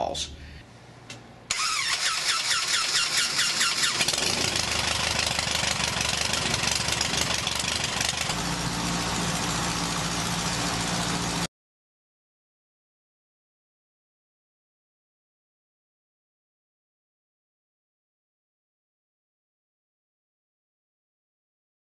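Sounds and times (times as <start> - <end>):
aircraft engine running: 1.5 - 11.5.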